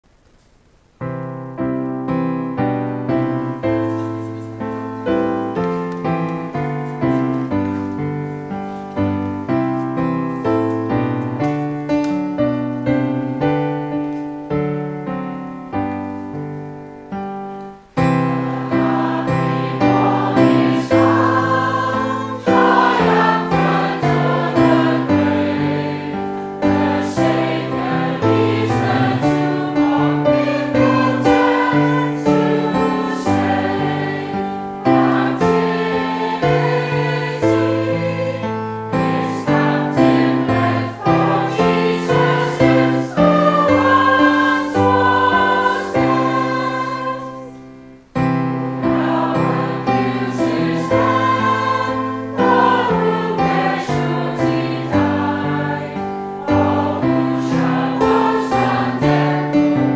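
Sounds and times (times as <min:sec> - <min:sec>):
piano playing hymn tune: 0:00.0 - 0:59.9
group singing in harmony: 0:18.1 - 0:47.9, 0:48.5 - 0:59.9.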